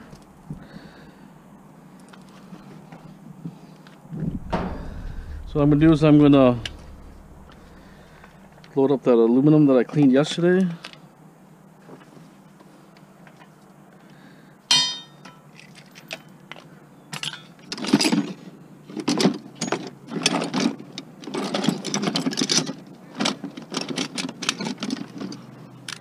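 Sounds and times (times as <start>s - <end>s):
metallic clang: 4.2s - 8.6s, 14.7s - 15.3s.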